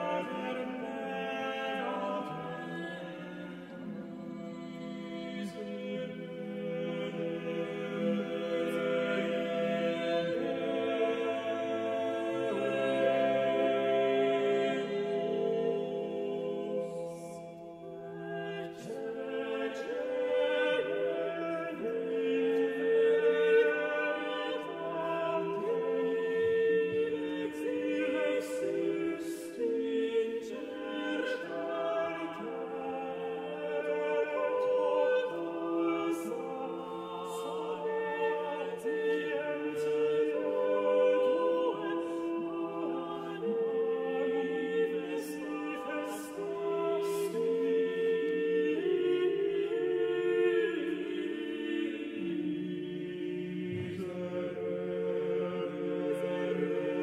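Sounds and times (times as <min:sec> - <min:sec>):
choir singing sustained chords: 0:00.0 - 0:57.0.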